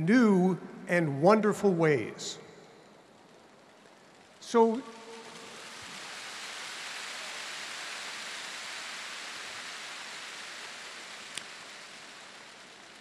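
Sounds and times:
rain hissing: 0:03.7 - 0:13.0.

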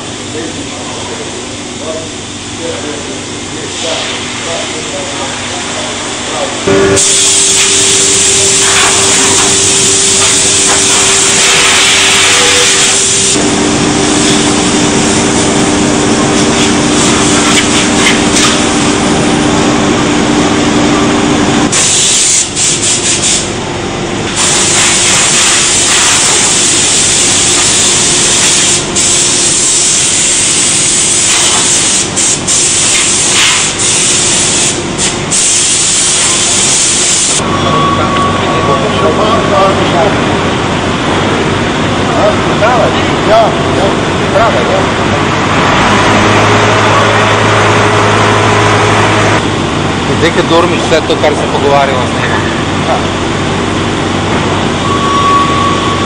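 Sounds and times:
low machine hum: 0:00.0 - 0:21.8, 0:23.4 - 0:32.9, 0:37.4 - 0:56.0
woodworking machinery hissing: 0:02.7 - 0:19.1, 0:21.7 - 0:23.6, 0:24.3 - 0:37.4.

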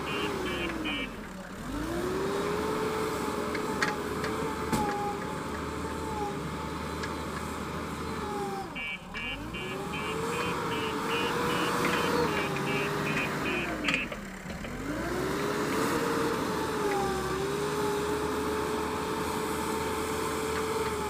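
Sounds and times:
reversing alarm beeping: 0:00.0 - 0:01.2, 0:08.8 - 0:14.2
diesel engine running under load: 0:00.0 - 0:21.0.

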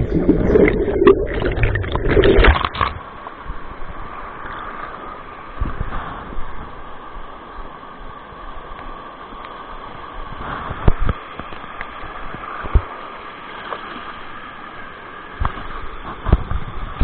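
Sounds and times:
river water rushing: 0:00.0 - 0:03.2.

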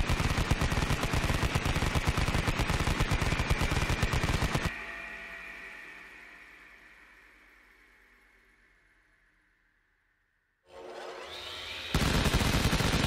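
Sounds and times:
rapid machine gun fire: 0:00.0 - 0:04.7, 0:11.9 - 0:13.0
high whine: 0:00.8 - 0:12.9.

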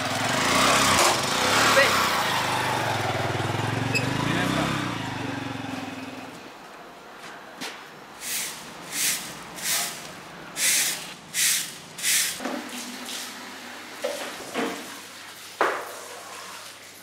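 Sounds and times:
broom sweeping: 0:08.2 - 0:13.4
squeegee scraping wet tiled floor: 0:08.2 - 0:17.0.

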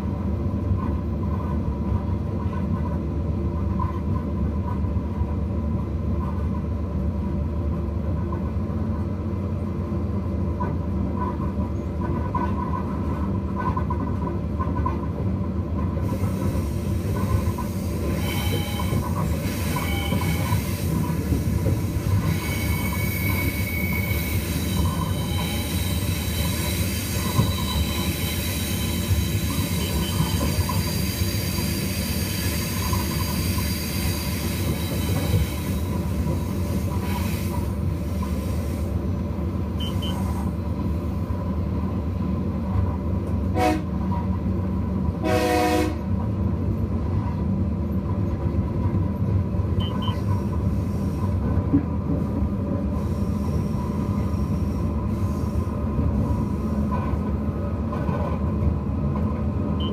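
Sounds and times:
diesel locomotive rumbling: 0:00.0 - 0:59.9
wheel squeal: 0:18.1 - 0:20.7, 0:22.2 - 0:35.9
train horn: 0:43.5 - 0:44.0, 0:45.2 - 0:46.1.

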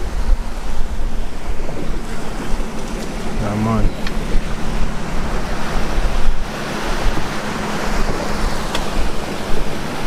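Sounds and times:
sea water washing at shore: 0:00.0 - 0:10.0
wind buffeting microphone: 0:00.0 - 0:10.0.

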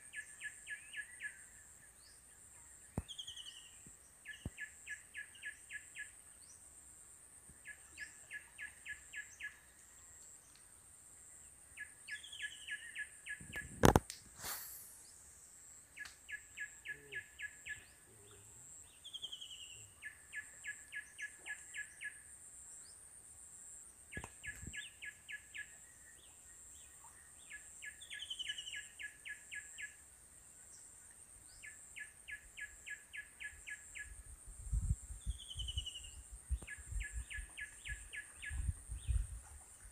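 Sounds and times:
short falling whistles: 0:13.8 - 0:15.0.

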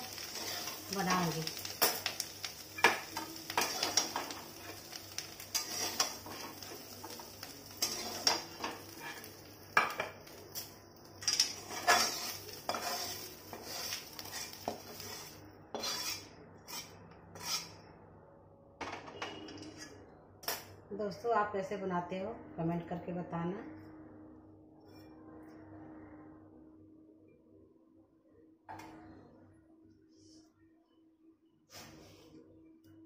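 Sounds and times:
frying oil hissing: 0:00.0 - 0:16.8
metal spatula scraping metal pan: 0:05.5 - 0:06.7, 0:07.7 - 0:09.3, 0:11.2 - 0:17.8.

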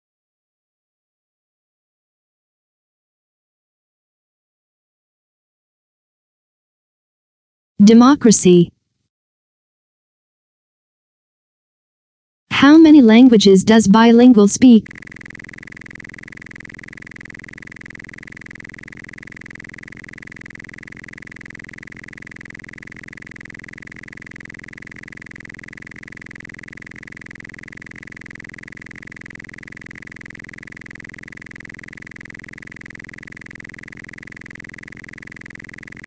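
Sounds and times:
steady hum: 0:14.1 - 0:36.0
high-pitched whine: 0:14.6 - 0:36.0.

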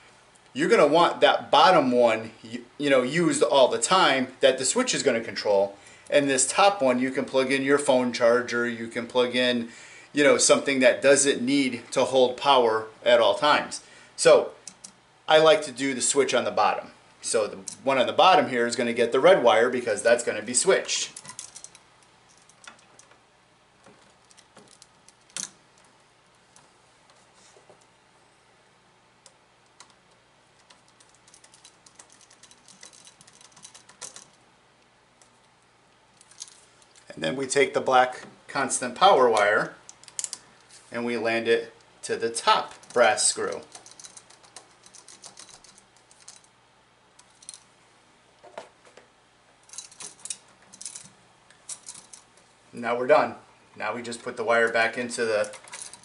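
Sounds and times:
faint clicks and scrapes of wiring: 0:23.8 - 0:27.9, 0:29.2 - 0:37.1, 0:42.5 - 0:46.5.

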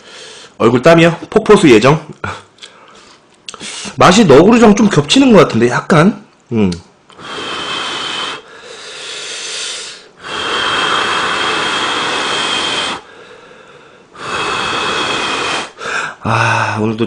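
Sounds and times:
person slurping noodles: 0:07.2 - 0:08.5, 0:10.2 - 0:13.1, 0:14.2 - 0:15.8.

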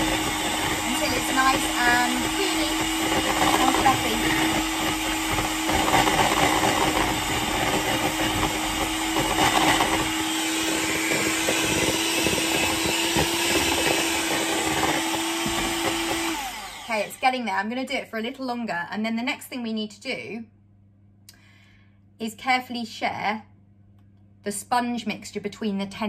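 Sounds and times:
electric hand whisk running: 0:00.0 - 0:17.4.

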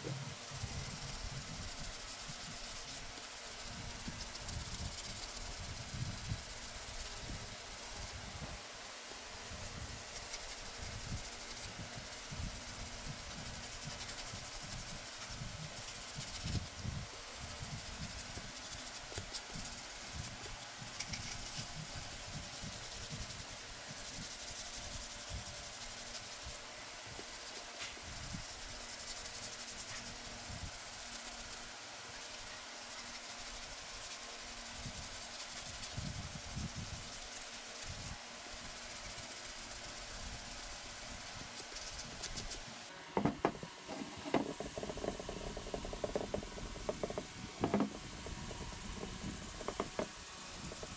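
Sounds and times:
sanding block rubbing plastic: 0:10.0 - 0:16.7, 0:43.2 - 0:50.9
light handling knocks: 0:43.1 - 0:50.9.

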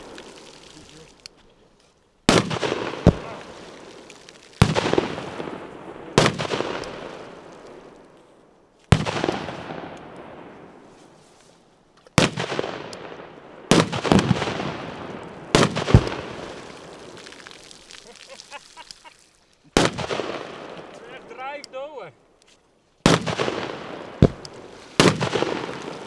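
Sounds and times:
firecrackers banging in water: 0:00.0 - 0:01.2, 0:02.2 - 0:07.9, 0:13.7 - 0:21.4, 0:23.0 - 0:26.0.

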